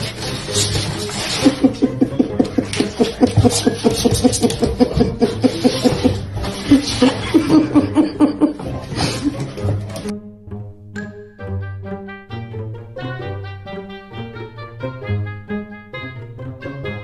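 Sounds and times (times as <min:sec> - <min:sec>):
person laughing hard: 0:01.3 - 0:09.6.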